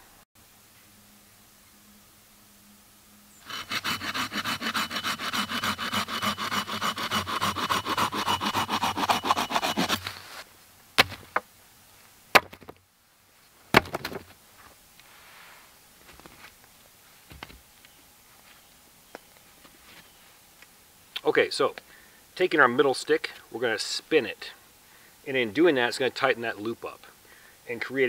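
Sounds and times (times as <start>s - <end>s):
hand saw cutting wooden stick: 3.4s - 10.4s
sharp knocks: 11.0s - 11.4s.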